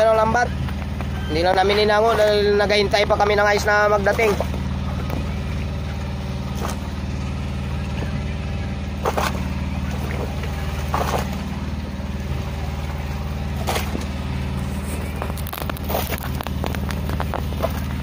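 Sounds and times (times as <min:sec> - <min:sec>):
small engine idling: 0:00.0 - 0:18.0
fish splashing in net: 0:09.0 - 0:11.5, 0:13.5 - 0:14.1.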